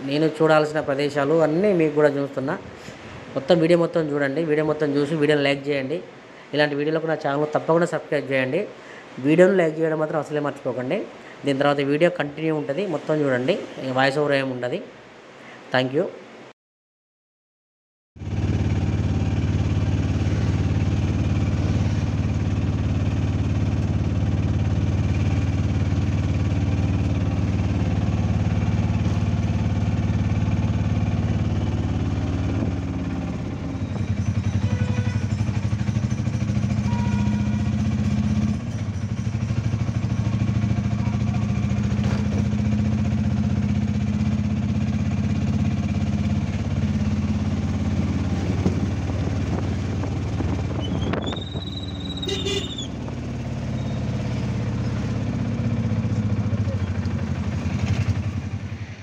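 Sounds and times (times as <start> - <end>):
auto-rickshaw engine running: 18.2 - 59.0.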